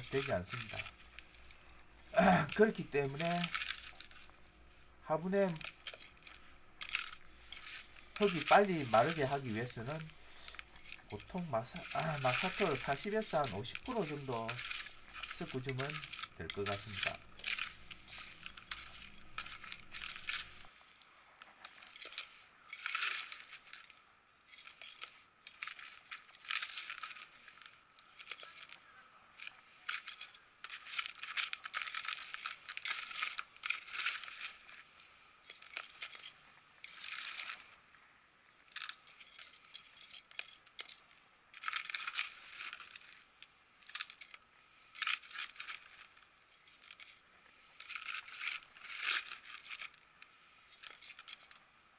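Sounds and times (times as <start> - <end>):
trowel scraping gritty soil: 0.0 - 4.5, 5.1 - 20.7.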